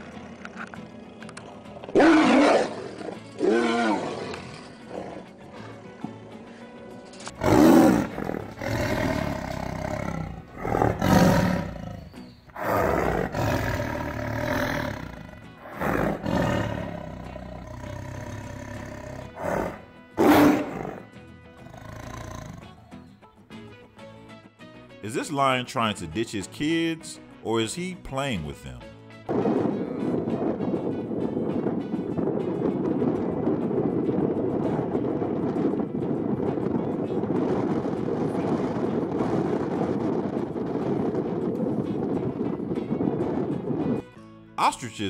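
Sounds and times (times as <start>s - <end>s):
music: 0.0s - 45.0s
tigers roaring: 1.9s - 5.9s, 7.3s - 23.0s.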